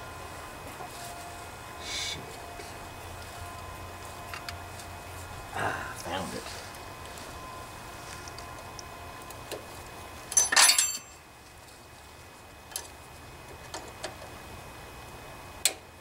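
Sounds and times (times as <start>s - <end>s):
metal tools clinking: 10.3s - 11.2s
ringing metallic clatter: 10.3s - 11.2s.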